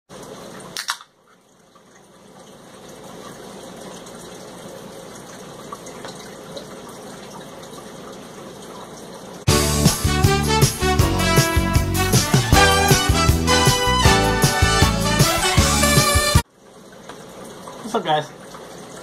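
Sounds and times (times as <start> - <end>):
drink can cracked open: 0.8 - 1.1.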